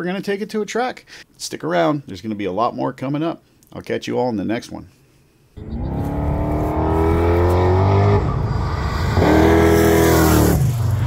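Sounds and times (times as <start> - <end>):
car engine accelerating hard: 5.6 - 11.0.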